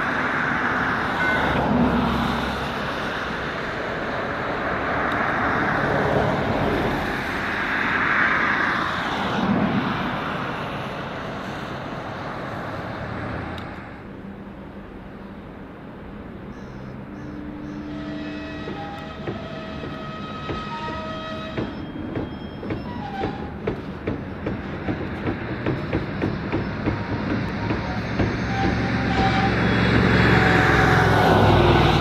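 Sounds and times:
vehicle rushing noise: 0:23.5 - 0:32.0.

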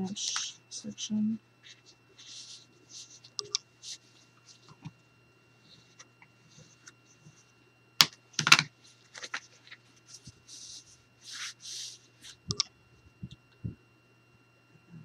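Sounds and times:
card rubbing swishes: 0:10.0 - 0:12.5.

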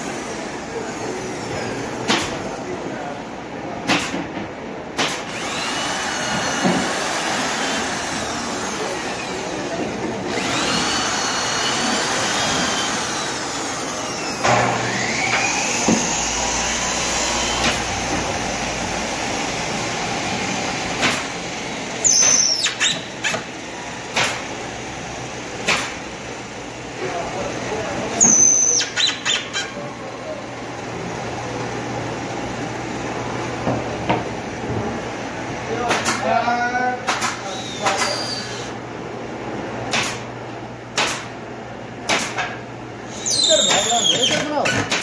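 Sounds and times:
steady machine noise: 0:04.8 - 0:28.5
cordless drill motor whining: 0:05.3 - 0:09.7, 0:10.3 - 0:17.9.

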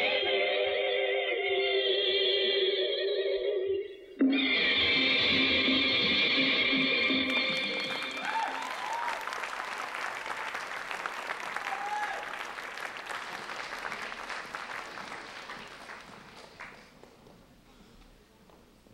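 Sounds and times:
audience applause: 0:07.2 - 0:17.2
short cheers: 0:07.9 - 0:09.5, 0:11.4 - 0:12.5.

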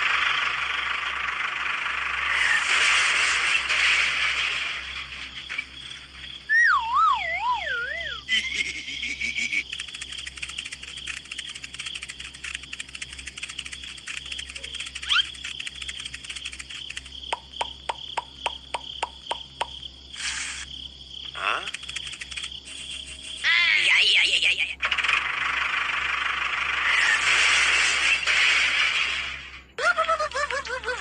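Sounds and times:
insects chirring: 0:00.0 - 0:28.8
quick chirps: 0:06.4 - 0:23.5
warbling tone: 0:06.5 - 0:08.3
short hiss: 0:20.1 - 0:20.7.

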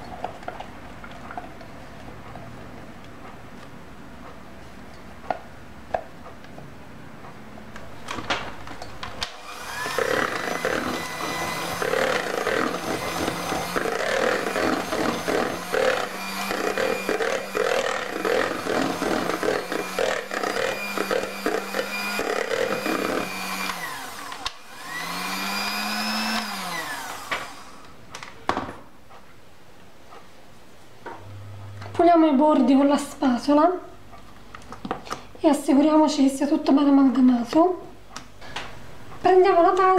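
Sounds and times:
electric hand mixer running: 0:09.2 - 0:28.0.

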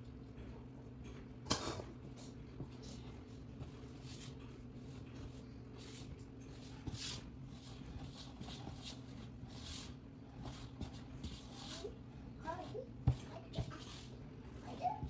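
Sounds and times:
low steady hum: 0:00.0 - 0:15.0
spatula scraping dough in bowl: 0:03.6 - 0:14.2.

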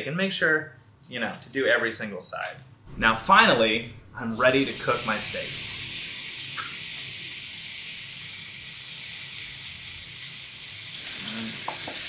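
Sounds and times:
steaks sizzling on grill: 0:04.3 - 0:12.0.

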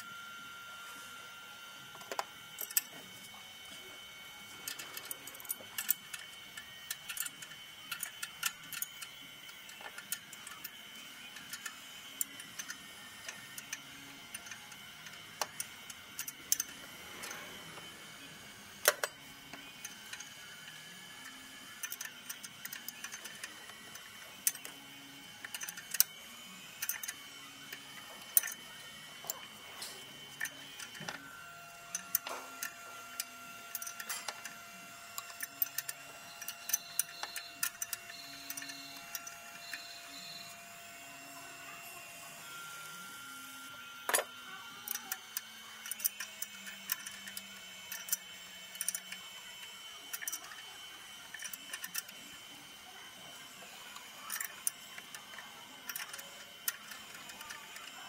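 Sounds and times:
hand tools clicking on metal: 0:31.9 - 0:34.6, 0:53.9 - 0:58.0.

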